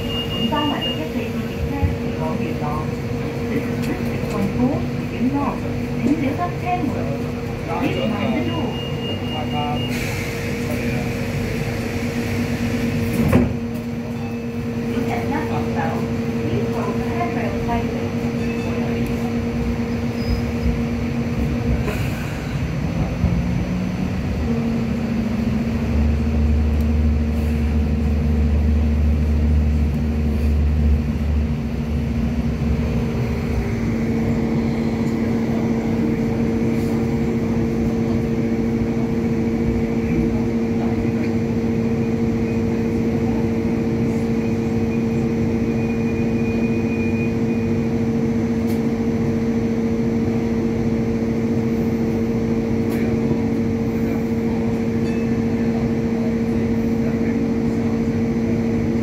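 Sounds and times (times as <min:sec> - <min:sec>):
tram rumbling along track: 0:00.0 - 0:59.0
deep low drone: 0:18.4 - 0:59.0.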